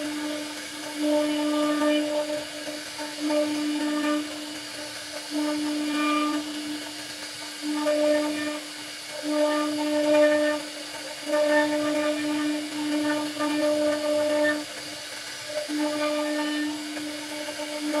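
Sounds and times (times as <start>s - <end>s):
router spindle whining: 0.0s - 18.0s
cutter carving wood: 9.4s - 14.8s, 15.4s - 18.0s.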